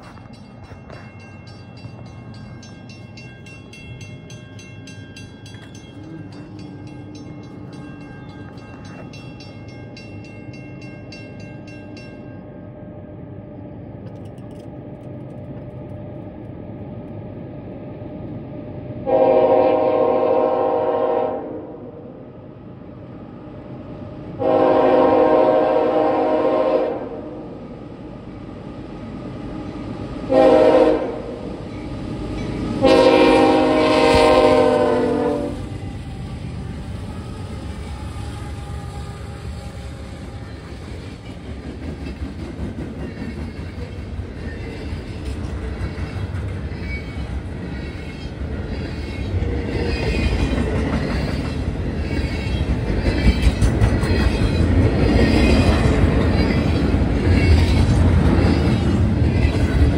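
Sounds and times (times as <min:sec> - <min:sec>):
wheels clicking over rail joints: 0:00.0 - 0:12.3, 0:14.0 - 0:16.5, 0:40.0 - 0:59.9
train rumble: 0:00.0 - 0:59.9
locomotive horn blasts: 0:19.1 - 0:21.8, 0:24.4 - 0:27.4, 0:30.3 - 0:31.4, 0:32.8 - 0:35.6.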